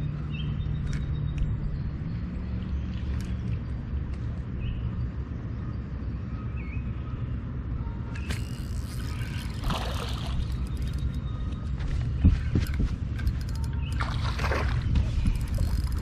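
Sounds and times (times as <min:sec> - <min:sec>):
water sloshing and splashing: 0:02.3 - 0:04.4, 0:08.3 - 0:16.0
steady low rumble: 0:08.4 - 0:16.0.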